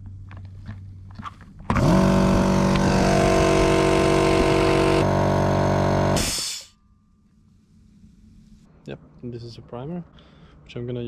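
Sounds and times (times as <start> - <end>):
air compressor motor running: 1.7 - 6.7.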